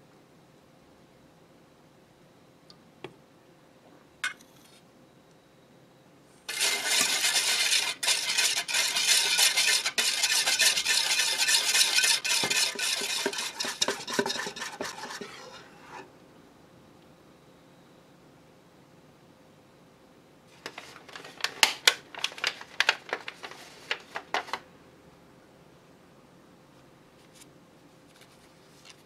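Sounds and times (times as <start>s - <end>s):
whisk clattering in metal bowl: 6.5s - 16.0s.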